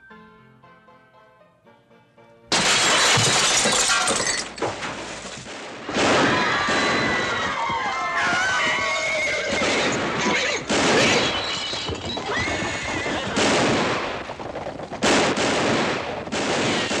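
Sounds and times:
gunshots: 2.5s - 17.0s
general commotion: 5.8s - 17.0s
horses whinnying: 6.0s - 15.2s.

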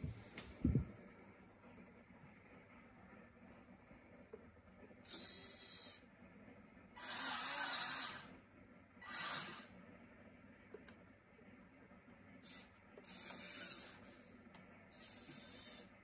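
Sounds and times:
servo whirring: 7.0s - 8.3s, 9.0s - 9.7s, 12.4s - 14.3s, 14.9s - 15.9s.

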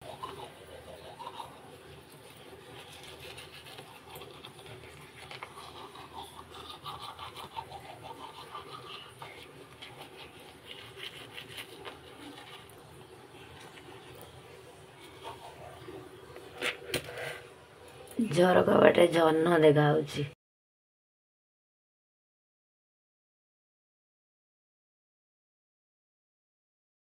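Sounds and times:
toothbrush scrubbing teeth: 0.0s - 17.5s.

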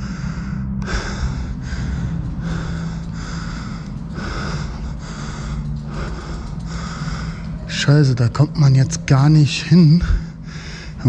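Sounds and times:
man breathing hard and fast: 0.0s - 7.8s, 10.0s - 11.0s
steady low hum: 0.0s - 11.0s.

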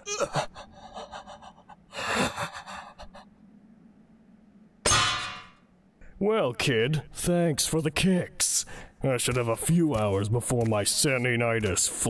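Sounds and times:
person gasping: 0.0s - 3.3s, 8.7s - 9.0s.

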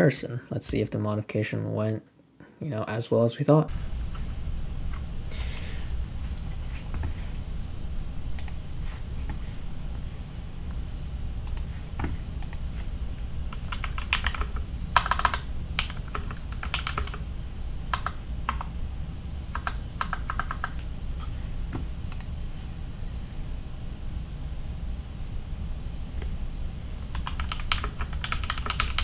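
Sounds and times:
typing on mechanical keyboard: 13.5s - 17.2s, 17.9s - 18.7s, 19.6s - 20.8s, 27.1s - 29.0s.

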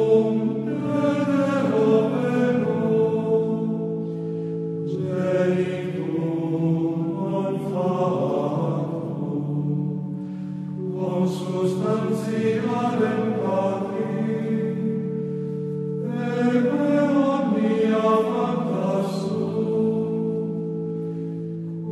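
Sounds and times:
choir singing a slow chant: 0.0s - 21.9s.

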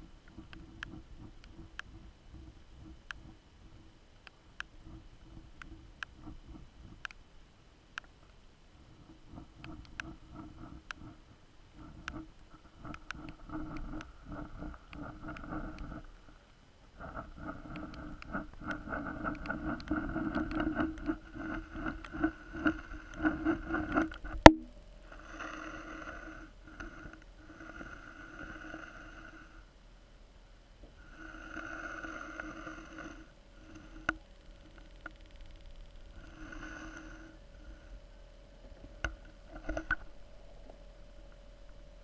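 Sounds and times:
underwater hum: 0.0s - 42.0s
scattered clicks: 5.6s - 7.2s, 9.3s - 11.2s, 11.8s - 16.1s, 17.0s - 24.6s, 33.7s - 36.2s.

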